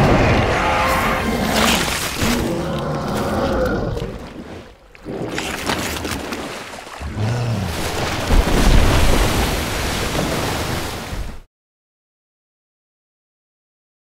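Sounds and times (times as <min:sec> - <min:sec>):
water splashing: 0:00.0 - 0:11.5
deep booming crash into water: 0:07.8 - 0:10.8.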